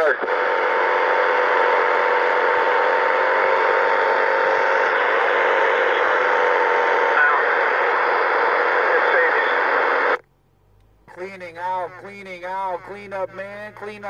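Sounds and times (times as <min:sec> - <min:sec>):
radio static hiss: 0:00.0 - 0:10.2, 0:11.1 - 0:14.0.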